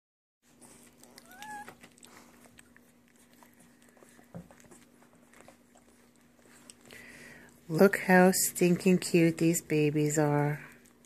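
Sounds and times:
puppy whimpering: 0:00.6 - 0:06.8.

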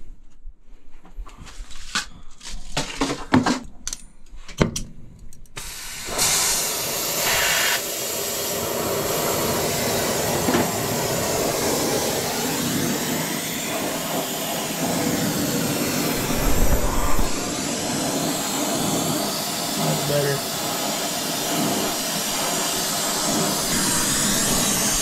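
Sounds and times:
gas torch flame rushing: 0:05.6 - 0:25.0.

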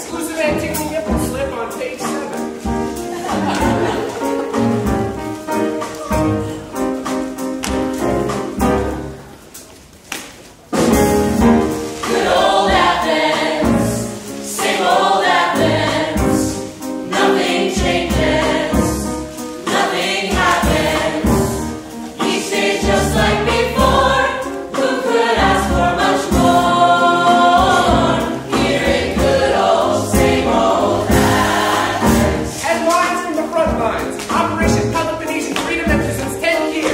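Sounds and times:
small pit band playing: 0:00.0 - 0:09.7, 0:10.6 - 0:36.9
mixed chorus singing in harmony: 0:03.1 - 0:04.7, 0:11.6 - 0:32.7.

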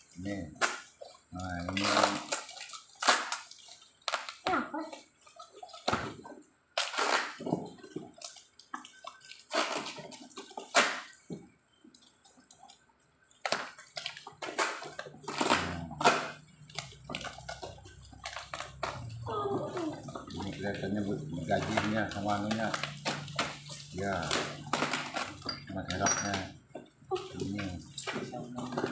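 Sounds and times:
bubble wrap crinkling: 0:00.2 - 0:05.0, 0:06.8 - 0:11.1, 0:13.3 - 0:26.4
packing tape tearing: 0:01.6 - 0:04.5, 0:06.8 - 0:07.7, 0:09.5 - 0:11.1, 0:14.4 - 0:17.4, 0:21.6 - 0:25.5.

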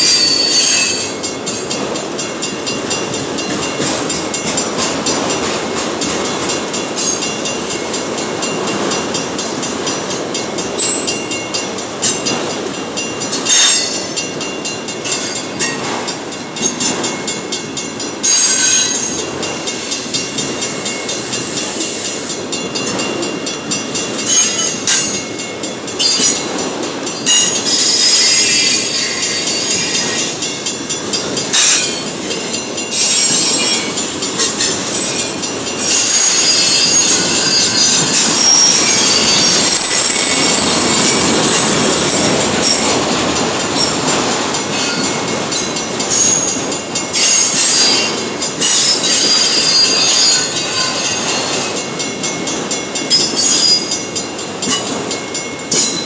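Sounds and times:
wheel squeal: 0:00.0 - 0:01.1, 0:27.3 - 0:30.3, 0:32.9 - 0:41.6, 0:47.2 - 0:51.7
steel wheels rumbling on rail: 0:00.0 - 0:56.0.

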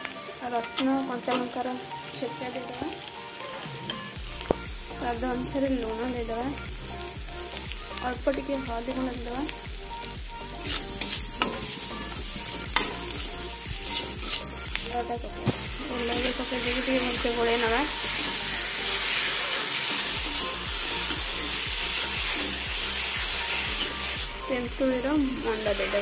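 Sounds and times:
oil sizzling: 0:00.0 - 0:26.0
metal spatula scraping pan: 0:10.6 - 0:11.7, 0:13.8 - 0:14.6.

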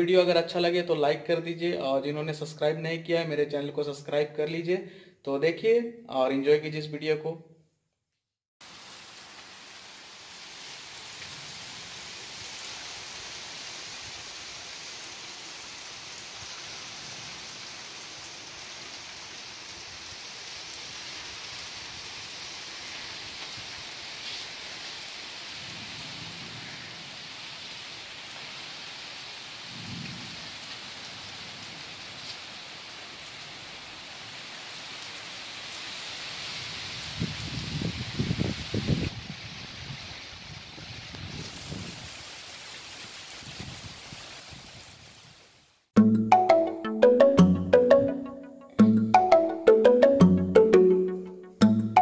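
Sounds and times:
heavy rain on paving and shrubs: 0:08.6 - 0:47.2.

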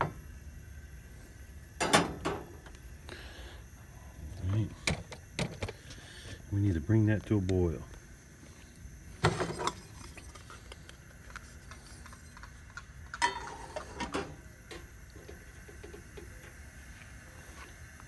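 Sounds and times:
camp stove burner rushing: 0:00.0 - 0:06.8, 0:07.4 - 0:18.0
metal lid clanking on steel pot: 0:13.2 - 0:14.4.

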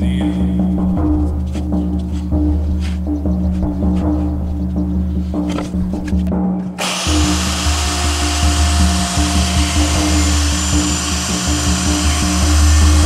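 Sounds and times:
background music: 0:00.0 - 0:13.0
router whining: 0:06.8 - 0:13.0.

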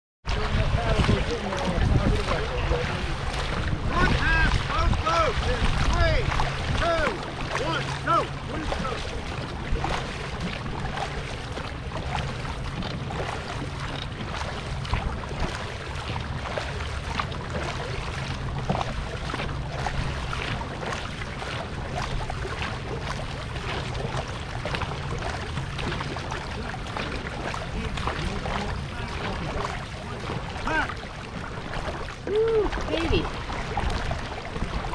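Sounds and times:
paddles splashing: 0:00.2 - 0:34.9
water rushing: 0:00.3 - 0:34.9.

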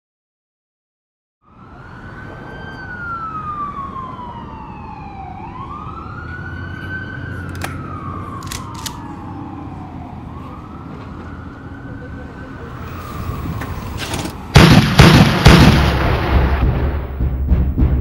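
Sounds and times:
siren wailing: 0:01.4 - 0:14.6.

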